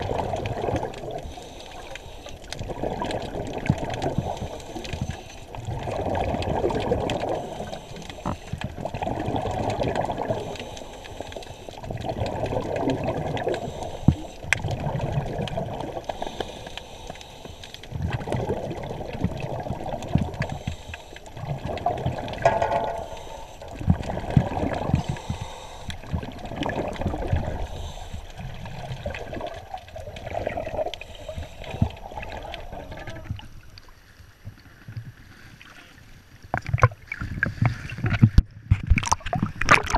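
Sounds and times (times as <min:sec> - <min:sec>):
underwater exhale bubbles gurgling: 0:00.0 - 0:39.9.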